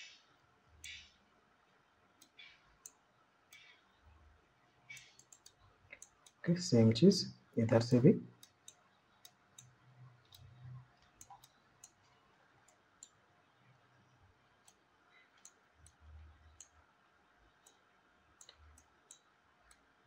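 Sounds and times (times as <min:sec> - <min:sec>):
computer mouse clicking: 0:00.8 - 0:01.2, 0:04.9 - 0:06.4, 0:07.8 - 0:12.0, 0:18.4 - 0:19.9.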